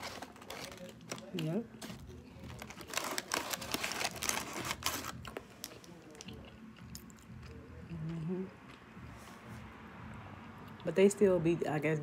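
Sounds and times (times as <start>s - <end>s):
paper bag rustling: 0.0s - 5.3s.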